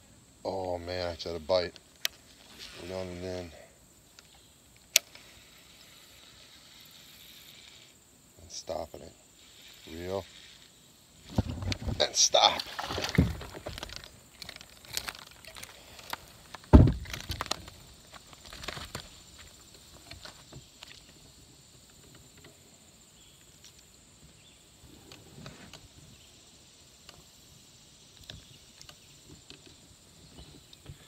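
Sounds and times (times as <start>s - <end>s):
fish handling clicks and rustles: 11.3s - 21.1s
loud thump: 16.7s - 17.2s.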